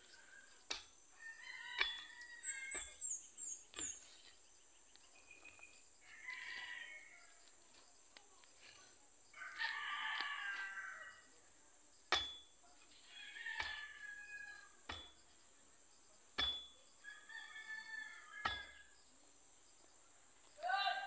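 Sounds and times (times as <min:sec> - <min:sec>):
rooster crowing: 0:01.2 - 0:03.0, 0:06.0 - 0:07.4, 0:09.3 - 0:11.3, 0:13.0 - 0:14.8, 0:17.0 - 0:18.9.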